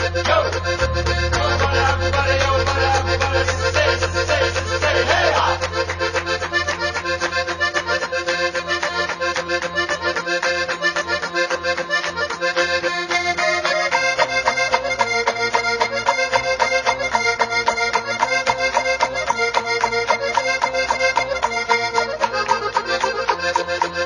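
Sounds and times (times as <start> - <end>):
background music with fast beat: 0.0 - 11.5.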